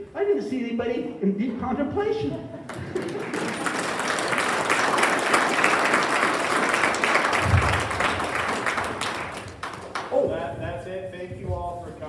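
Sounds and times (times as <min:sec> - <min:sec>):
audience applauding: 0:02.7 - 0:10.4.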